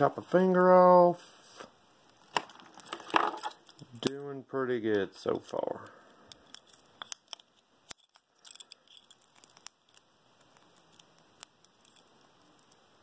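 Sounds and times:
adhesive tape crinkling: 0:05.3 - 0:13.0.

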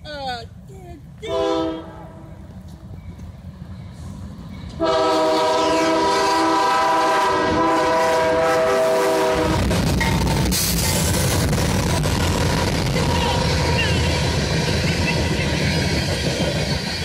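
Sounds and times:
locomotives rumbling past: 0:00.0 - 0:17.0
locomotive air horn chord: 0:01.3 - 0:02.4, 0:04.8 - 0:09.8.

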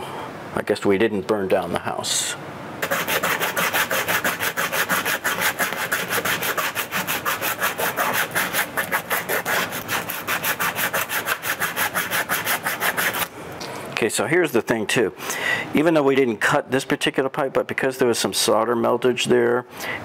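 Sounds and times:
hand tool scraping copper pipe: 0:02.8 - 0:13.3.

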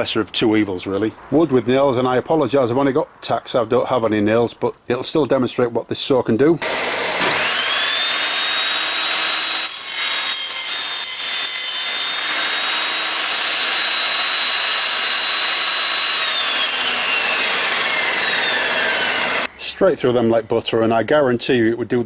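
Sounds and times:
table saw cutting wood: 0:06.6 - 0:19.5.

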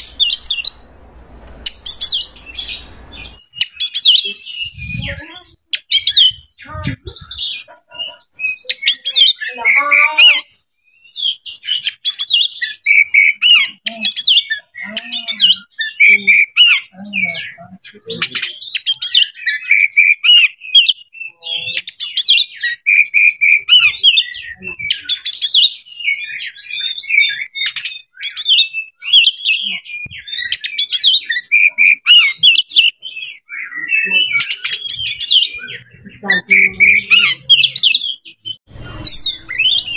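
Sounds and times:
bird singing whistled song: 0:10.3 - 0:17.4, 0:18.1 - 0:39.9.

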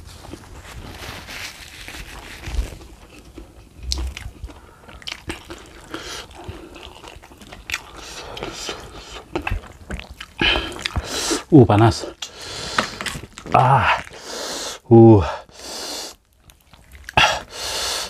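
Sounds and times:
wet chewing and biting: 0:02.1 - 0:11.5, 0:16.1 - 0:17.6.

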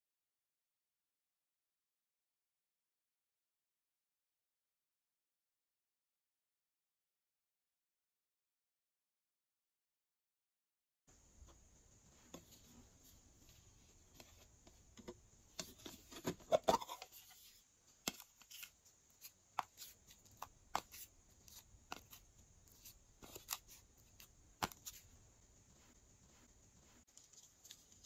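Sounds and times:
light clicks and scratches: 0:11.4 - 0:28.0.

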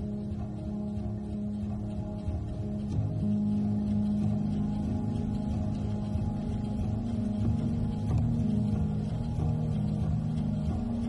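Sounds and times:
sustained low music notes: 0:00.0 - 0:11.0.

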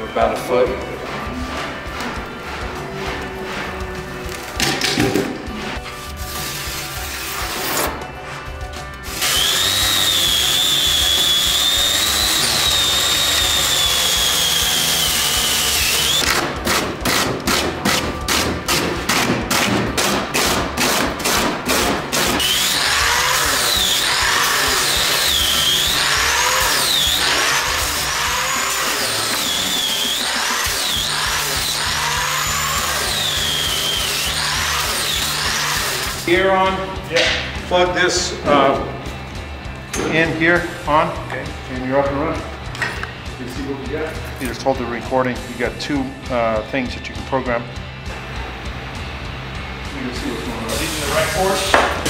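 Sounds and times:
background music: 0:00.0 - 0:52.0
hand rasp scraping foam: 0:00.3 - 0:04.6, 0:20.8 - 0:36.3
power tool whine: 0:09.0 - 0:16.6, 0:22.1 - 0:36.3.

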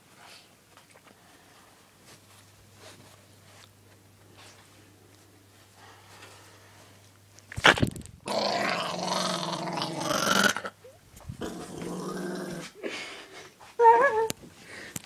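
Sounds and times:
dog growling: 0:08.3 - 0:10.8, 0:11.4 - 0:12.8.

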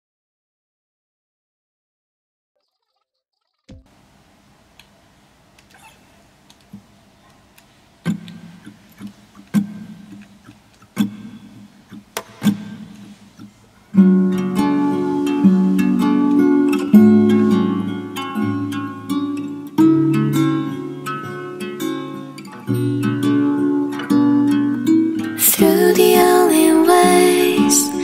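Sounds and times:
plucked acoustic guitar notes: 0:08.0 - 0:28.0
strummed guitar chords: 0:14.0 - 0:28.0.

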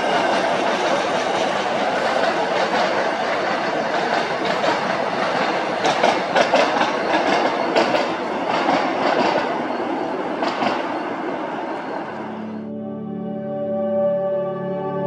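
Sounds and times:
wheels clacking over rail joints: 0:00.0 - 0:12.1
train wheels rumbling on track: 0:00.0 - 0:12.5.

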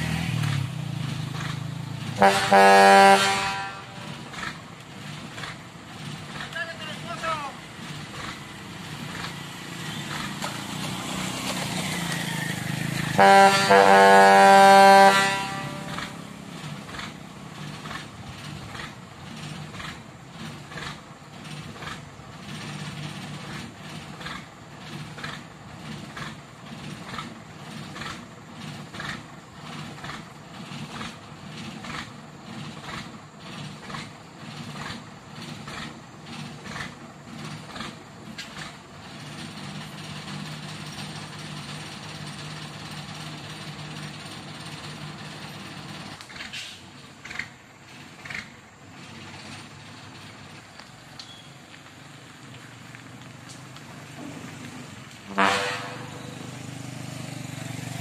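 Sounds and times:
truck engine running: 0:00.0 - 0:58.0
truck horn blowing: 0:02.2 - 0:04.4, 0:13.1 - 0:16.3, 0:55.3 - 0:56.5.

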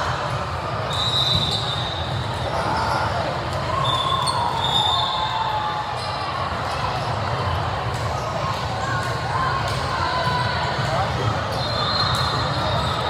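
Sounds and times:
high whistle: 0:00.8 - 0:02.1, 0:03.7 - 0:05.7.

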